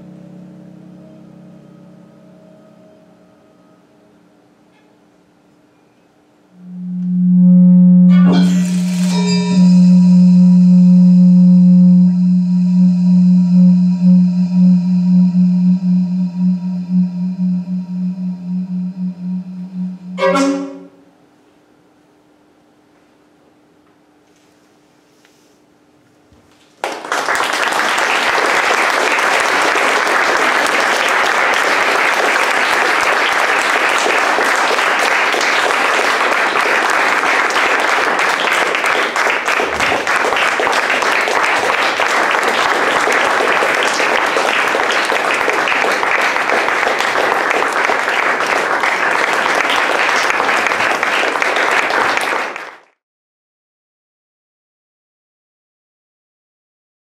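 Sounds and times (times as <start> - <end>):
audience applause: 26.8 - 52.9.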